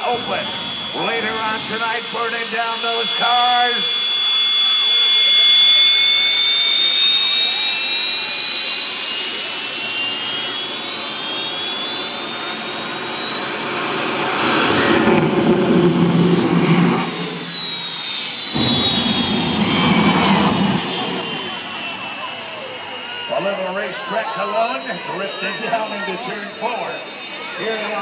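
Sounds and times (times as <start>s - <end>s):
deep rumble: 0.0s - 4.6s, 12.1s - 23.4s
turbine engine whine: 0.0s - 28.0s.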